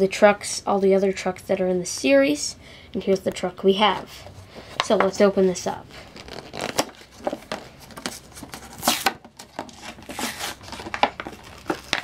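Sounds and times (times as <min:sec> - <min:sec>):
plastic blister pack crinkling: 0:05.9 - 0:12.0.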